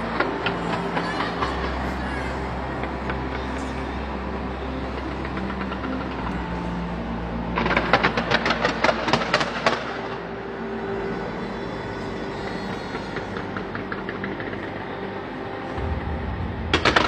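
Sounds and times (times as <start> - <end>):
low rumble: 15.7 - 17.0.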